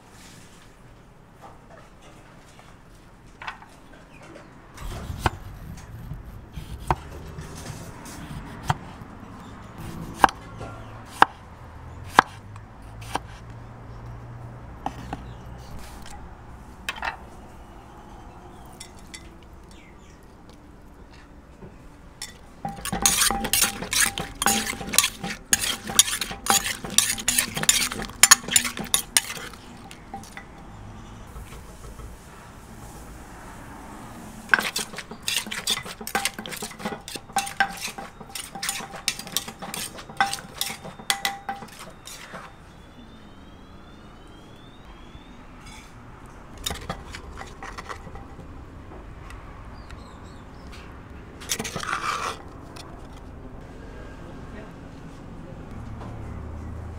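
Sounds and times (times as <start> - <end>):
pestle pounding in clay mortar: 4.8 - 8.9, 22.6 - 30.7, 34.5 - 42.6.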